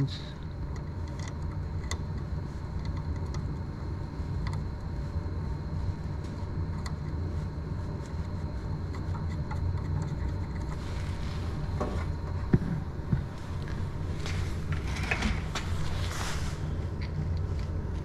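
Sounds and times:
steady low rumble: 0.0s - 18.0s.

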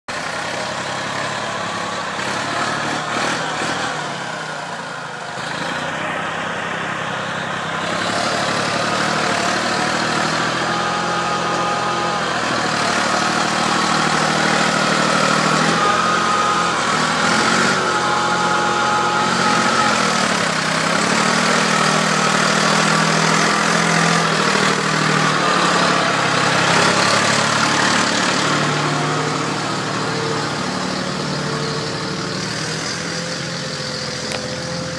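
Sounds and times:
tractor diesel engine running: 0.1s - 34.9s.

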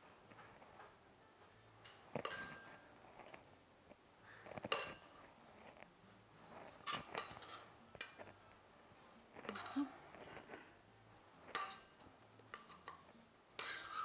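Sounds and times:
metal spoon clinking on bowl: 1.8s - 2.9s, 4.6s - 5.2s, 6.9s - 8.3s, 9.4s - 10.0s, 11.5s - 14.0s.

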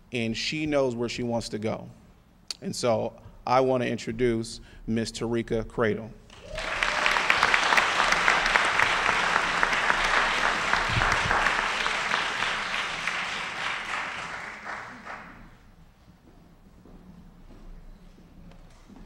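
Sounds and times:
audience applauding: 6.3s - 15.6s.

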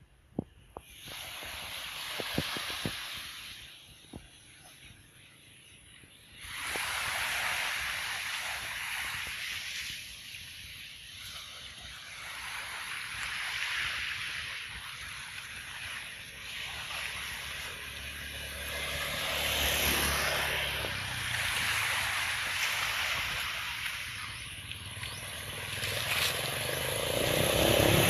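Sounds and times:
rushing hiss: 0.8s - 3.9s, 6.4s - 28.0s
motor scooter engines humming: 17.8s - 21.6s, 24.3s - 28.0s.

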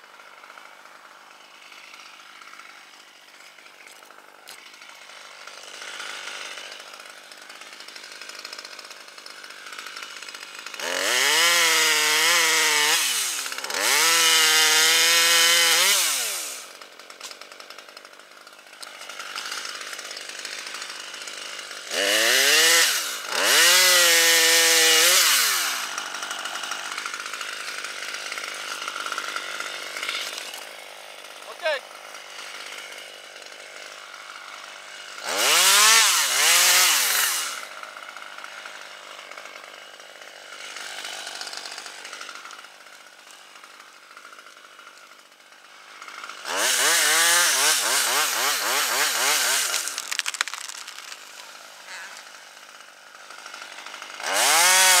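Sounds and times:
chainsaw revving: 0.0s - 55.0s.

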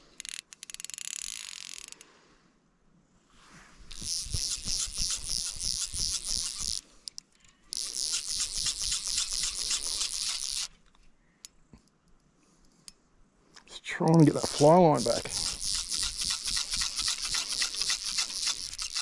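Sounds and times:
fishing reel ratchet buzzing: 0.2s - 2.0s, 3.9s - 10.7s, 14.1s - 19.0s.

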